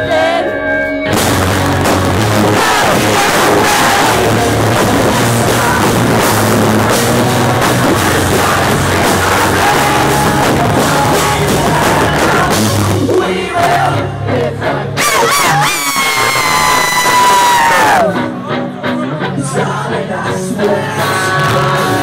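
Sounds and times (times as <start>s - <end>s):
person singing: 0.0s - 1.2s, 2.2s - 22.0s
live rock band playing: 0.0s - 22.0s.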